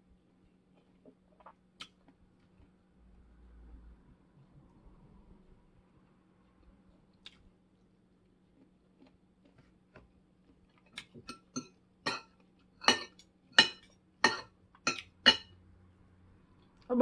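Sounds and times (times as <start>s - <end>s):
cutlery clinking against dish: 11.2s - 15.5s.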